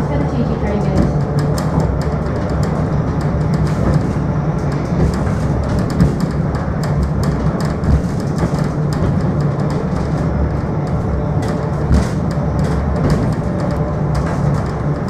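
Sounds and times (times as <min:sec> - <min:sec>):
railway car rumbling: 0:00.0 - 0:15.0
wheel clicks and knocks: 0:00.2 - 0:15.0.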